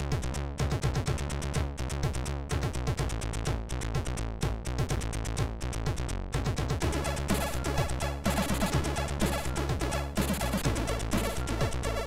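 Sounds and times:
synth bass: 0.0s - 12.0s
chiptune noise-drum hits: 6.6s - 12.0s.

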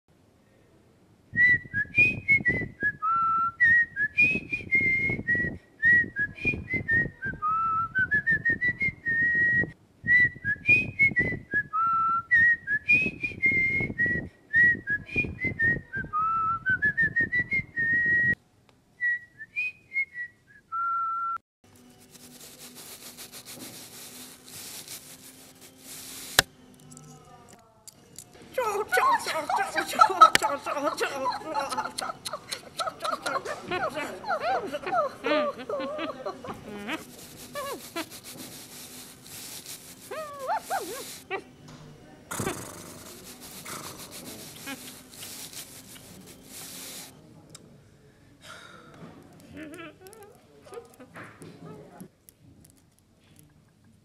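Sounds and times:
person whistling a melody: 1.4s - 18.4s, 19.0s - 21.4s
faint steady hiss: 21.7s - 27.5s, 34.7s - 48.4s.

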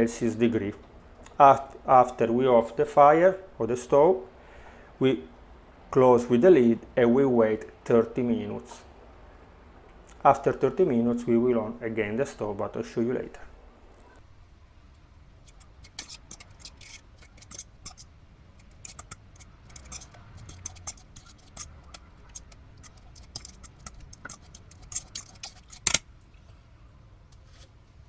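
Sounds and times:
metal fork scraping a steel pot: 15.4s - 26.0s.

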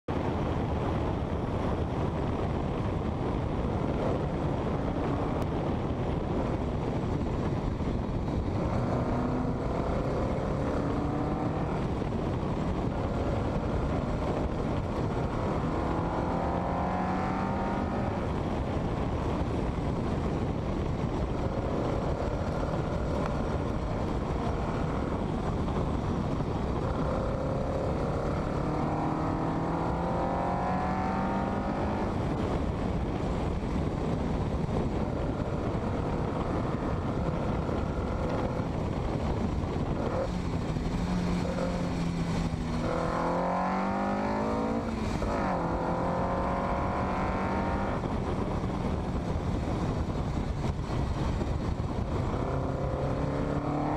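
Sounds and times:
wind and road noise: 0.0s - 53.9s
car engine accelerating: 8.2s - 18.4s, 21.0s - 32.7s, 39.8s - 53.9s.

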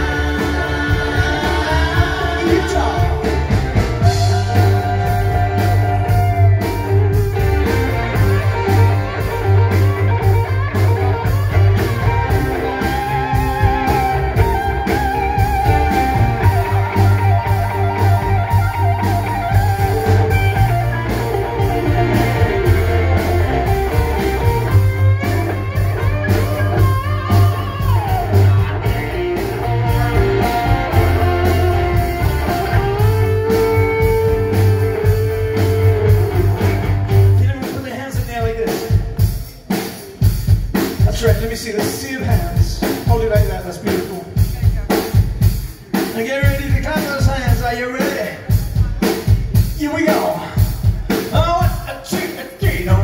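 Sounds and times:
guitar lead with bent notes: 0.0s - 40.8s
bass: 0.0s - 53.0s
steady drum beat: 0.0s - 53.0s.

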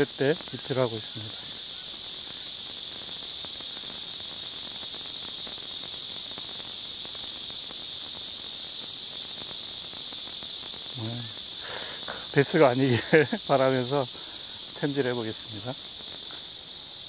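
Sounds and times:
insects chorus: 0.0s - 17.0s.

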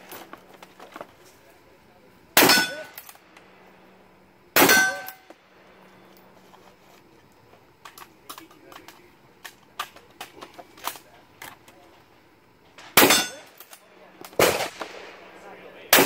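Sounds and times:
rifle shots with ringing tail: 2.4s - 3.2s, 4.6s - 5.9s, 12.8s - 16.0s
rifle handling clicks: 7.3s - 11.8s.

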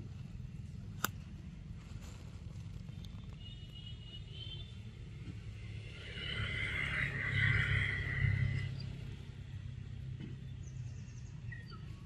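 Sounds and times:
low rumble: 5.5s - 9.8s.

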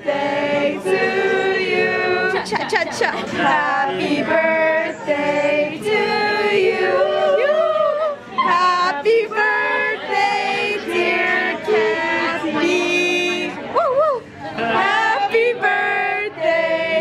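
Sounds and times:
group singing unaccompanied: 0.0s - 13.7s, 14.5s - 17.0s.

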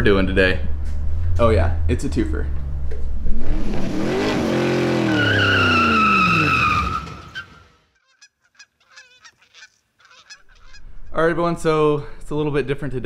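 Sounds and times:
faint goose honks: 8.0s - 10.8s.

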